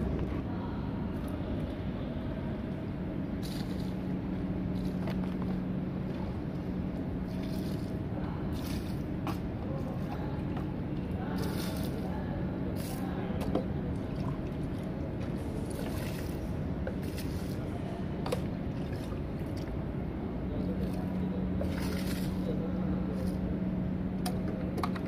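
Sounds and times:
steady low hum: 0.0s - 25.0s
water splashing on concrete: 13.9s - 19.8s, 21.6s - 22.6s.

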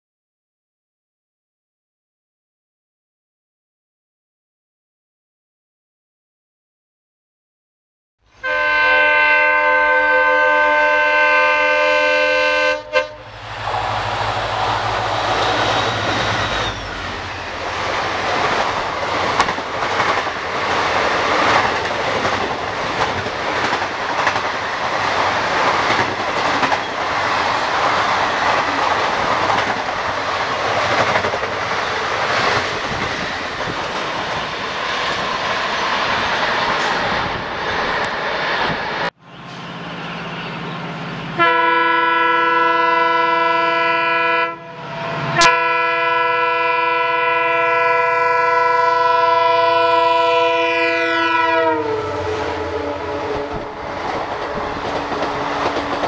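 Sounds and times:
locomotive horn chord: 8.4s - 15.1s, 41.3s - 53.7s
train wheels clattering over joints: 54.0s - 56.0s.

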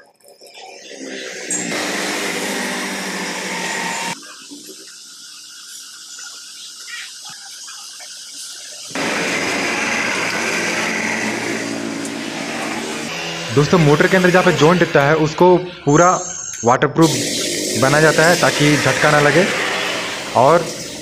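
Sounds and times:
motor-driven machine whirring: 0.9s - 4.2s, 8.9s - 16.6s, 17.2s - 21.0s.

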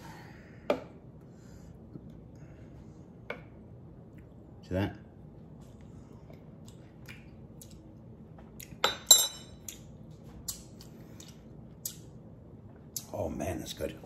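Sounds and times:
metal spoon clinking: 8.8s - 9.6s.

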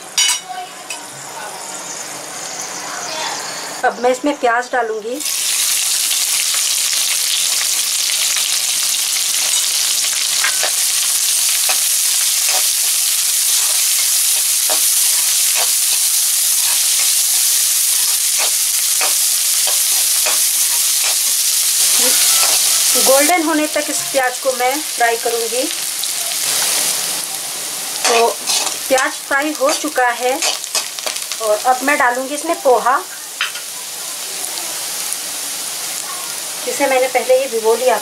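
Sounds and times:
onions sizzling in oil: 5.0s - 38.0s.

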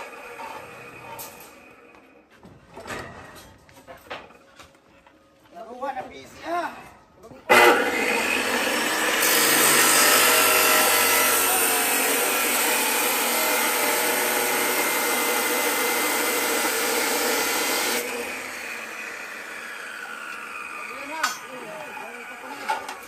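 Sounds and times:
power tool running: 0.0s - 2.0s, 7.5s - 23.0s.

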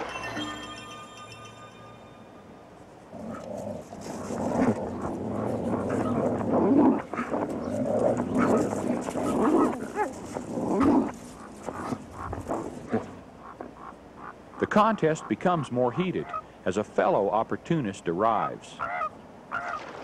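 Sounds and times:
animals snarling and growling: 3.1s - 13.3s.

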